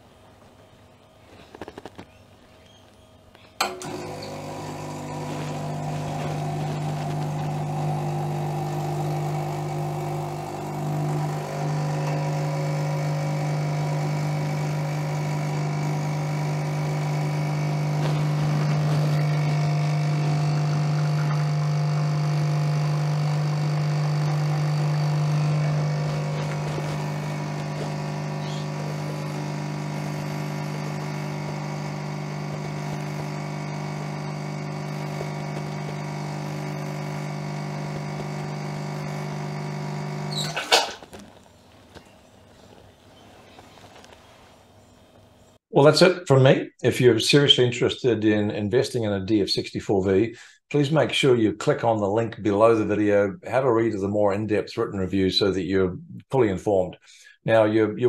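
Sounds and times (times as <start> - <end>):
espresso machine pump humming: 3.6 - 41.3.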